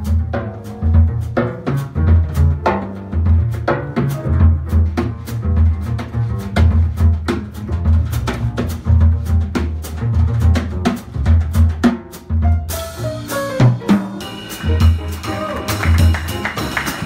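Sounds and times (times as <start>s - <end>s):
brushed snare drum: 0.0s - 17.0s
plucked double bass: 0.0s - 17.0s
piano notes: 12.4s - 17.0s.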